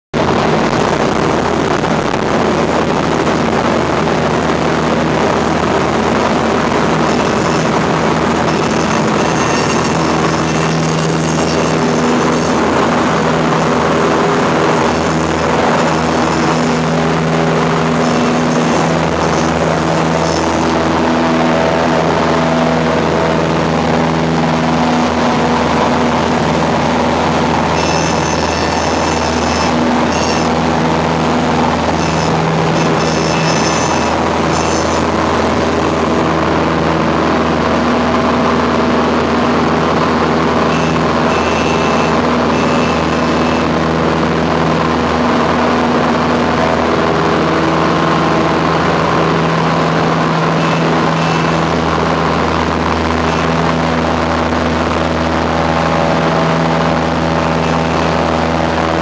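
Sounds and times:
airplane engine and propeller: 0.1s - 59.0s
high-pitched stall-warning tone: 5.0s - 36.3s, 40.3s - 44.5s, 48.2s - 55.1s, 55.8s - 59.0s.

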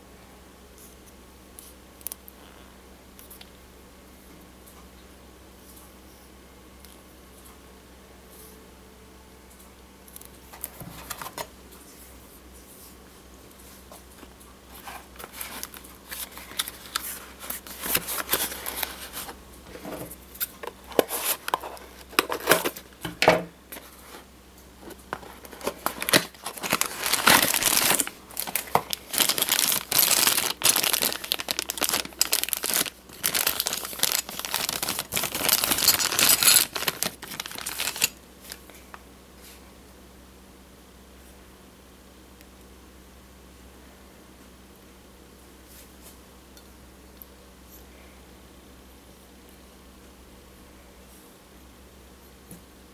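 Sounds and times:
packaging crinkling and tearing: 14.7s - 19.4s, 20.4s - 23.0s, 24.8s - 38.8s.

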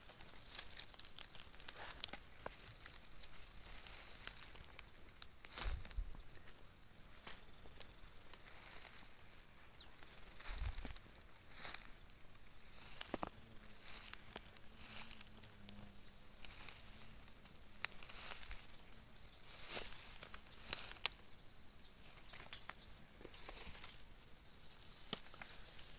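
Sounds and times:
insects chirring: 0.0s - 25.9s
thumps and rustles in grass: 5.5s - 6.2s, 10.4s - 11.9s.

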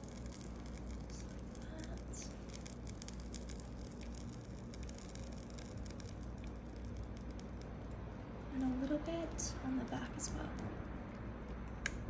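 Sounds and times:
meat sizzling: 0.0s - 7.8s
low steady hum: 0.0s - 12.0s.

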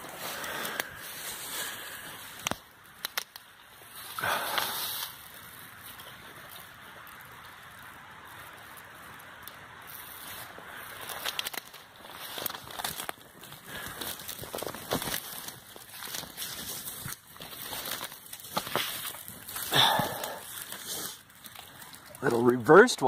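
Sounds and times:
footsteps rustling through twigs: 0.0s - 22.8s
twig snaps: 2.2s - 3.7s, 10.9s - 22.2s.

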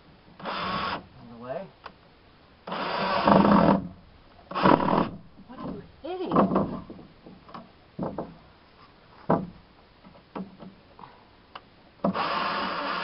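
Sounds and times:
cordless drill whirring: 2.7s - 3.8s, 12.1s - 13.0s
knocks and taps on wood: 5.6s - 8.4s, 9.2s - 10.8s.

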